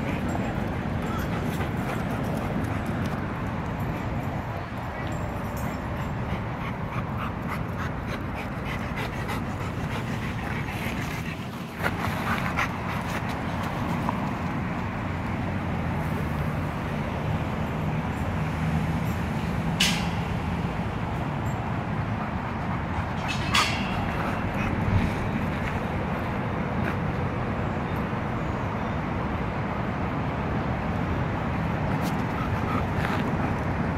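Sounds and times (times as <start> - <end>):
dog panting: 0.0 - 13.8
low rumble of city traffic: 0.0 - 33.9.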